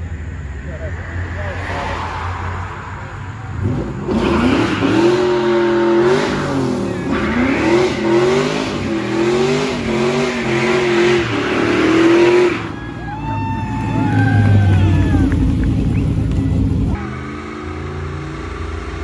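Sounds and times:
car engine revving hard: 3.5 - 12.7.

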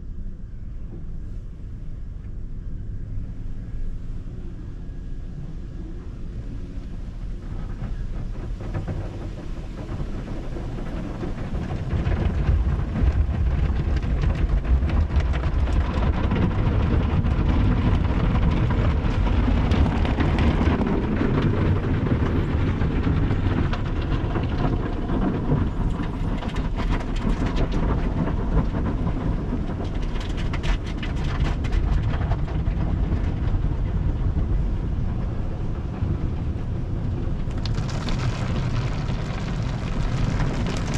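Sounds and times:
deep rumble: 0.0 - 40.9
water spray drumming on car: 37.5 - 40.9.

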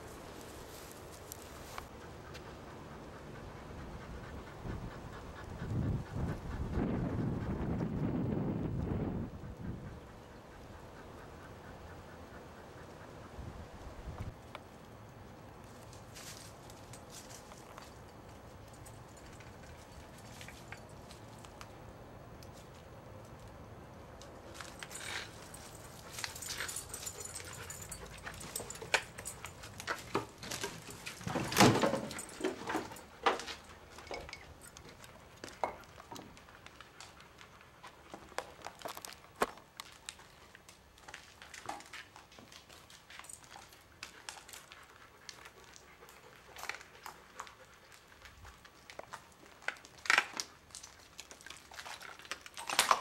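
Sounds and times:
footsteps crunching on debris: 34.8 - 45.8.

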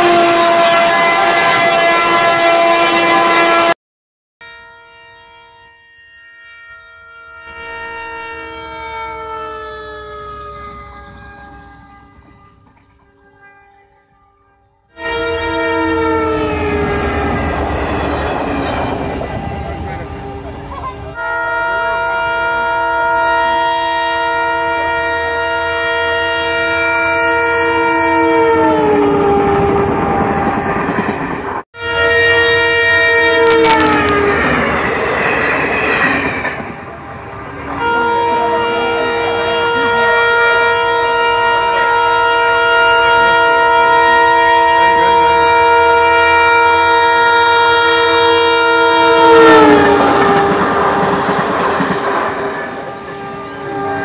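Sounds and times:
locomotive air horn blast: 0.0 - 3.8, 4.4 - 30.7, 31.8 - 34.8, 37.6 - 54.0
wheels rushing on rails: 7.0 - 41.2, 44.2 - 54.0.

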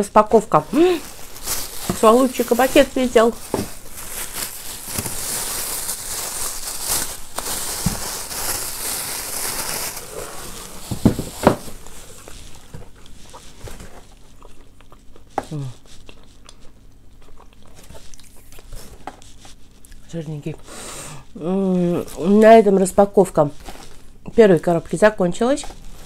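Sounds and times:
plastic bag crinkling: 0.0 - 14.6.

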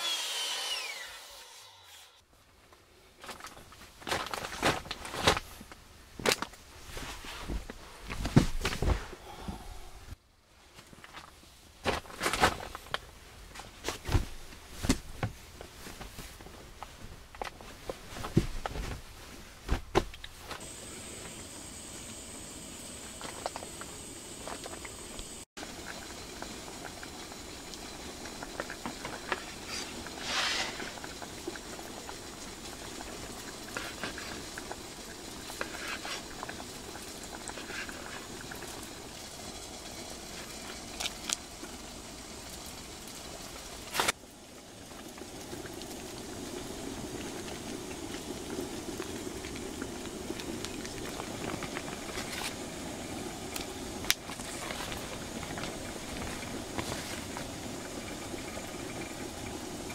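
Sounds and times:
pot of soup boiling: 20.6 - 59.9.

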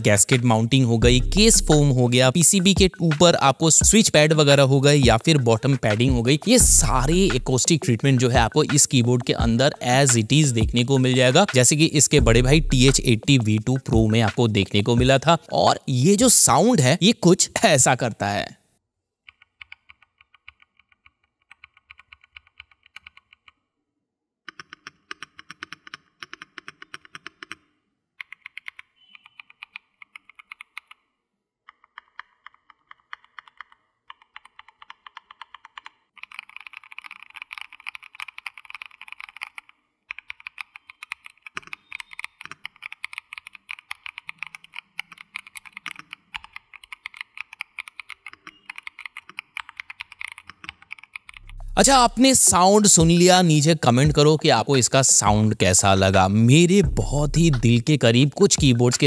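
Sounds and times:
mechanical keyboard typing: 19.3 - 23.6, 24.5 - 31.1, 31.7 - 52.0.

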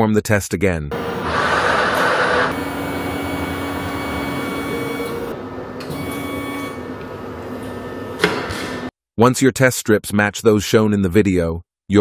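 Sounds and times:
printer motors whirring: 0.9 - 8.9.

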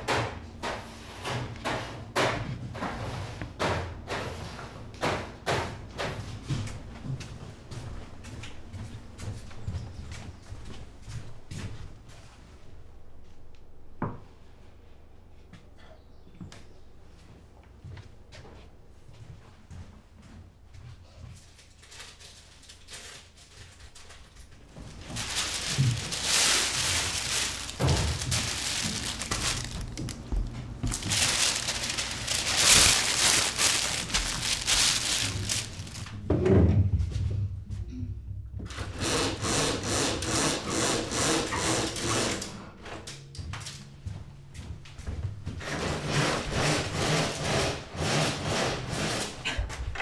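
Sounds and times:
paper rustling and rubbing: 21.7 - 36.2.

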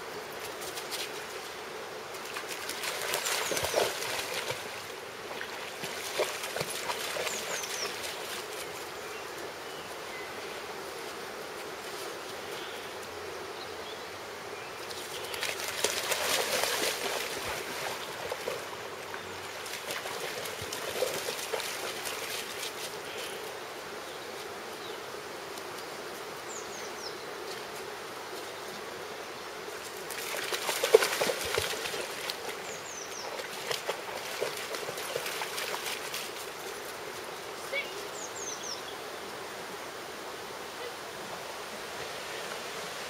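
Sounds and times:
river flowing: 0.0 - 26.6, 27.3 - 43.0
dog splashing through water: 2.2 - 8.7, 15.2 - 18.8, 19.5 - 23.0, 30.1 - 36.7.

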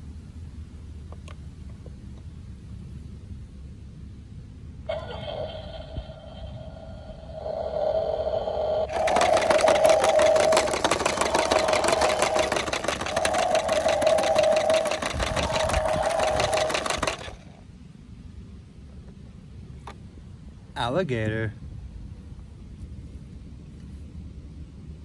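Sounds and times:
toy steady pitched tone: 4.9 - 17.4
toy motor hum: 4.9 - 17.6
fast mechanical rattle: 8.9 - 17.6.

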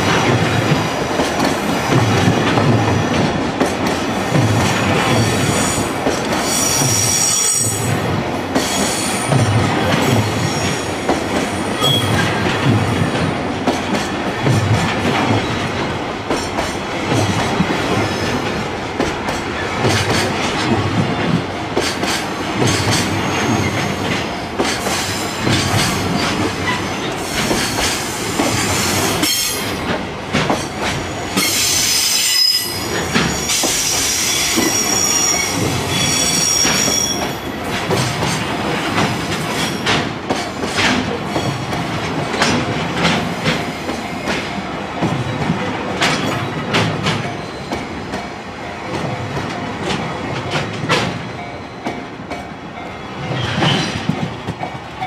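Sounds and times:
train wheels clattering over joints: 0.0 - 32.0, 32.9 - 52.5, 53.1 - 55.0
high-pitched wheel squeal: 31.5 - 37.3.

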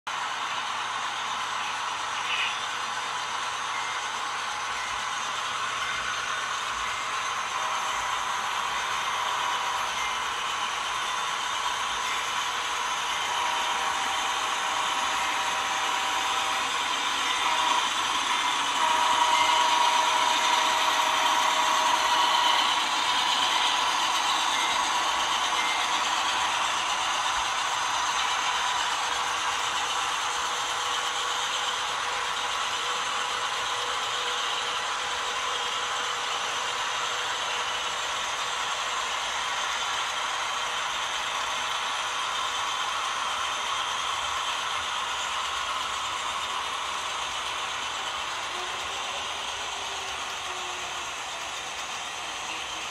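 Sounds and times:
model train wheels rattling: 0.4 - 52.9.

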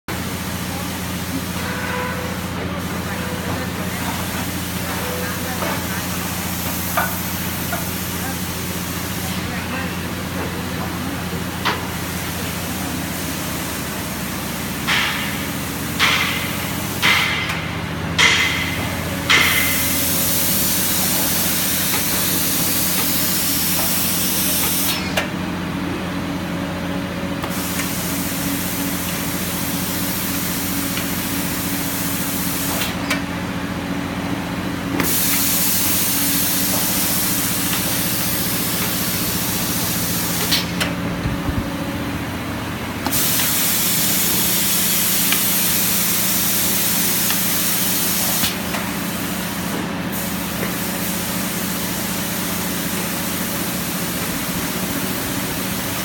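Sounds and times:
spray nozzles hissing: 19.3 - 25.2, 43.0 - 56.0.

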